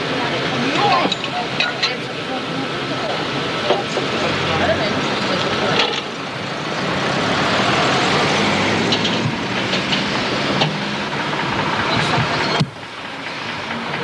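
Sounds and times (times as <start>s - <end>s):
steady noisy rumble: 0.0s - 14.0s
metal knocks and clanks: 8.8s - 12.8s.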